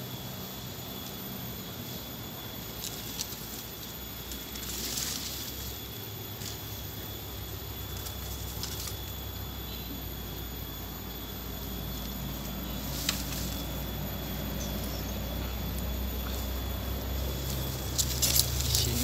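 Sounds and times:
footsteps in dry leaf litter: 2.7 - 6.9, 12.7 - 13.9, 17.4 - 19.0.

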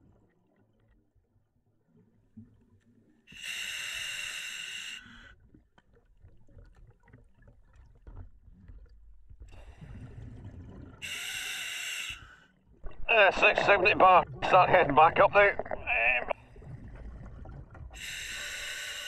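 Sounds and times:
regulator hissing on inhalation: 3.4 - 5.1, 11.0 - 12.4, 18.0 - 19.0
exhaled air bubbling: 5.1 - 11.6, 12.6 - 19.0.

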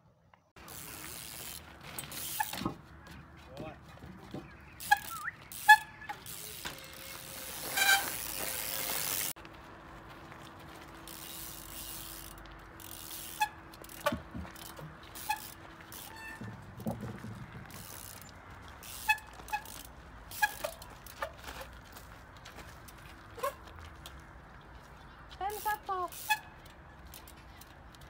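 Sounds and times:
bike freewheel ratcheting: 0.6 - 2.7, 4.8 - 9.4, 10.8 - 21.7, 25.5 - 28.0
bike wheels knocking on concrete: 13.8 - 19.8.

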